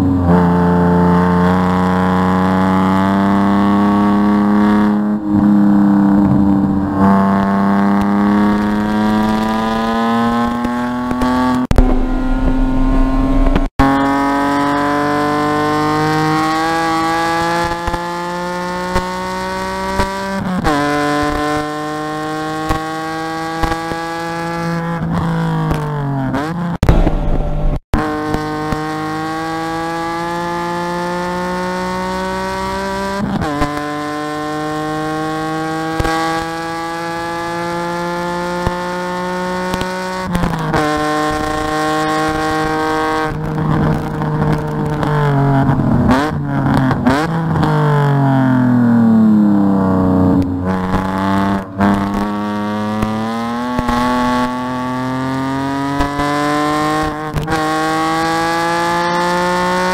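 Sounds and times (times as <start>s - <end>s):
car engine accelerating through gears: 0.0s - 59.9s
throttle blips on downshifts: 0.0s - 59.9s
low thump: 11.7s - 13.7s, 26.8s - 27.8s.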